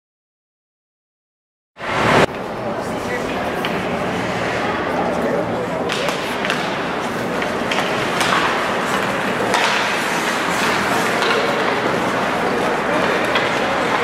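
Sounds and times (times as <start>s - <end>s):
crowd noise: 1.8s - 14.0s
hockey sticks clacking on puck: 5.8s - 14.0s
skates on ice: 5.8s - 14.0s.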